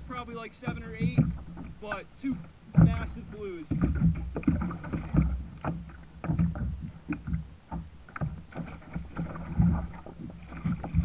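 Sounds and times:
water splashing against kayak hull: 0.0 - 11.0
knocks on kayak: 0.6 - 1.8, 2.7 - 10.0.

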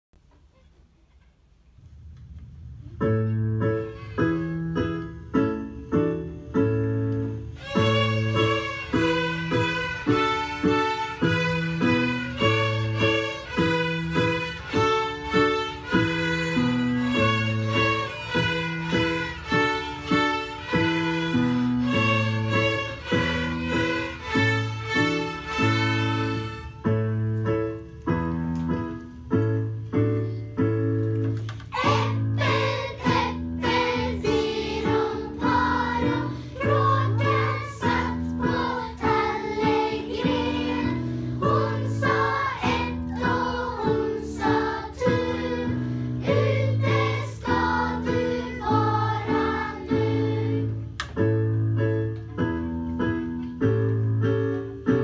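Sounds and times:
string orchestra playing: 7.5 - 26.9
children singing: 7.6 - 26.6, 31.8 - 50.8.

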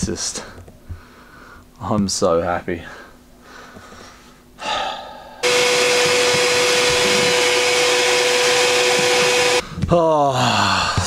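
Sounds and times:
vacuum cleaner running: 5.4 - 9.6.

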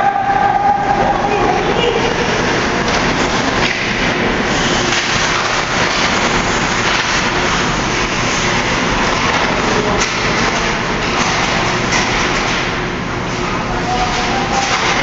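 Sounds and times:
ice hockey rink rumbling: 0.0 - 15.0.

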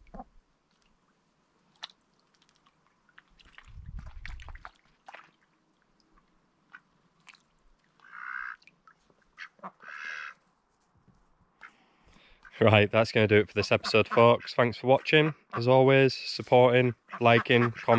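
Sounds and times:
ducks dabbling in water: 0.0 - 10.4.

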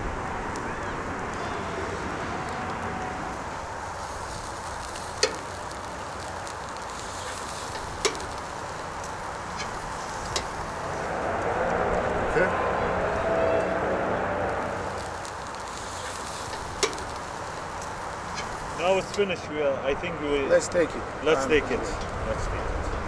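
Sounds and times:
sharp crackling pops: 0.0 - 12.3, 14.4 - 19.4
meat sizzling over charcoal: 0.0 - 23.0.

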